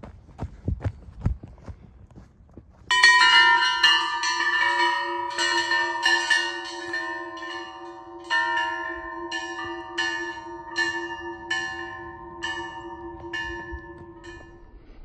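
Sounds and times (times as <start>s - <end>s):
large metal bells ringing: 2.9s - 14.8s.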